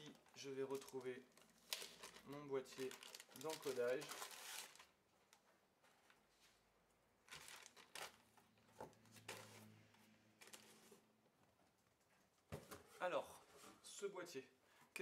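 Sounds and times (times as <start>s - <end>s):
packaging rustling: 0.0s - 5.0s, 7.2s - 8.4s, 10.4s - 11.0s.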